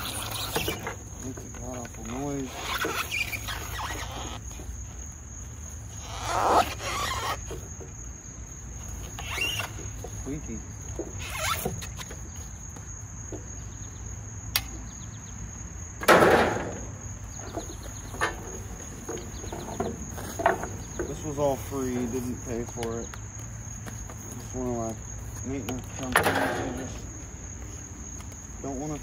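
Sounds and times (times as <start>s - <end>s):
insulation scraping and tearing: 0.0s - 4.6s, 6.0s - 7.6s, 9.1s - 9.9s, 11.2s - 12.1s
insects droning: 0.0s - 29.0s
sharp click: 14.5s - 14.8s.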